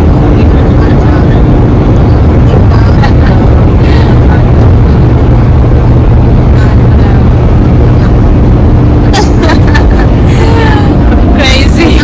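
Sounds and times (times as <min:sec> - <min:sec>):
road and engine rumble in car: 0:00.0 - 0:12.0.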